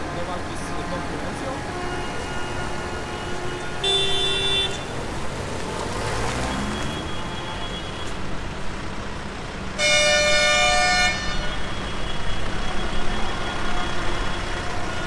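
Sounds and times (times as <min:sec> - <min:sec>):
tractor diesel engines running: 0:00.0 - 0:15.0
multi-tone horn honk: 0:01.2 - 0:04.9, 0:09.8 - 0:11.7.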